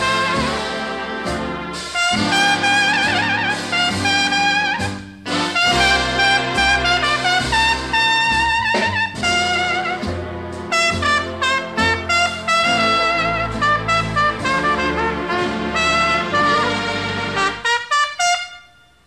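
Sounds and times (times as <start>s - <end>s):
bass line: 0.0s - 17.8s
trumpet-like brass melody: 0.0s - 19.0s.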